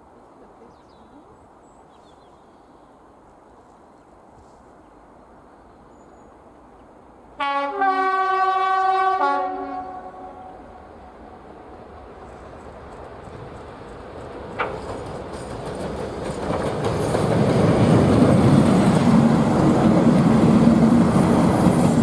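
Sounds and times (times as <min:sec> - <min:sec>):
faint outdoor hiss: 0:00.0 - 0:22.0
train two-tone horn: 0:07.4 - 0:11.5.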